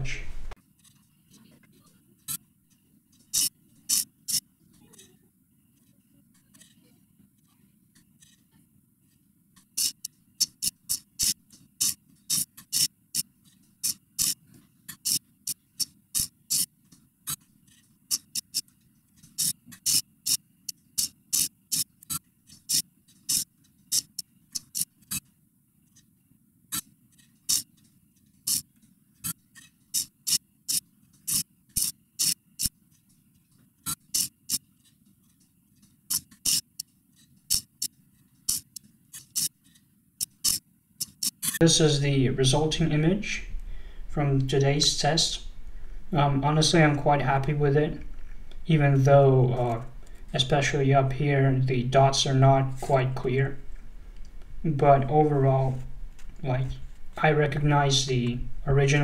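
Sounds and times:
faint low hum: 0.0s - 12.3s, 40.8s - 59.0s
servo pen machine clicking: 2.3s - 4.4s, 9.6s - 25.3s, 26.7s - 33.0s, 33.8s - 35.5s, 36.1s - 39.6s, 40.2s - 41.6s.

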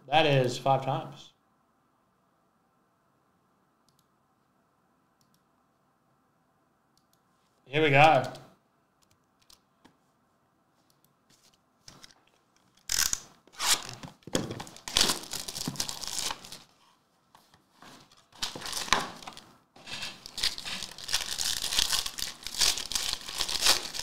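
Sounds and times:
plastic wrapping crinkling: 11.9s - 16.8s, 17.9s - 24.0s
foil pack crinkling and tearing: 14.6s - 16.7s, 18.0s - 24.0s.

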